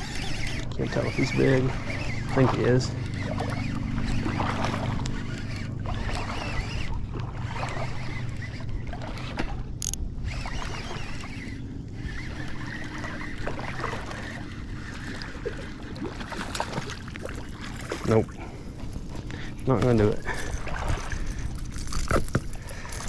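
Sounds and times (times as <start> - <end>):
low steady hum: 0.0 - 23.0
water against kayak hull: 0.0 - 23.0
sharp click: 9.8 - 10.0.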